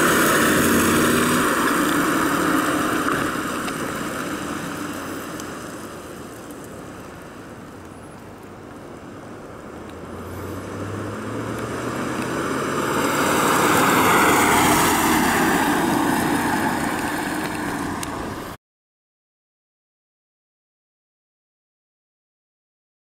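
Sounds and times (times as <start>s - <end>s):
car engine passing by: 0.0s - 5.7s, 9.9s - 18.6s.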